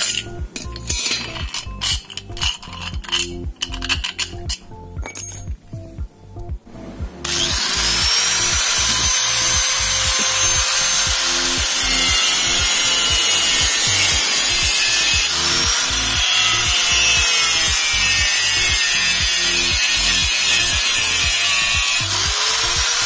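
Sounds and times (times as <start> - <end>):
angle grinder cutting steel: 7.2 - 23.0.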